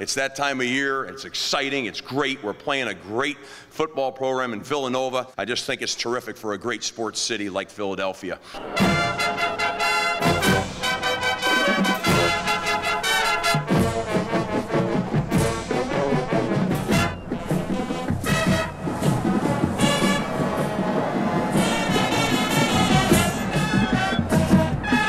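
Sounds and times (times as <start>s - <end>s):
brass music over a beat: 8.6s - 25.0s.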